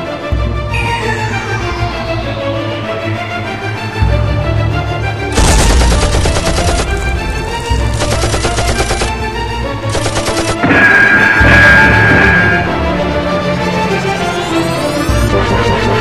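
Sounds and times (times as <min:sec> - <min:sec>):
music with steady tones: 0:00.0 - 0:16.0
automatic gunfire: 0:05.4 - 0:07.2, 0:07.9 - 0:09.2, 0:09.9 - 0:10.6.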